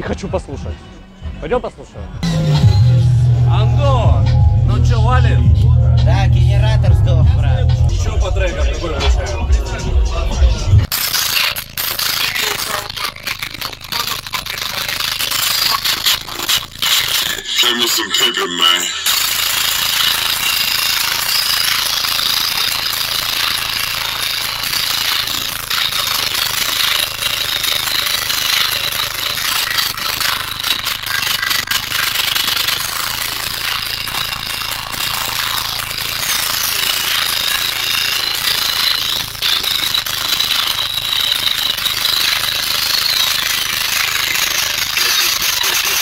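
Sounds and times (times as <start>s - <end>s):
distorted subwoofer bass: 0.6s - 46.0s
air buffeting: 2.2s - 10.9s.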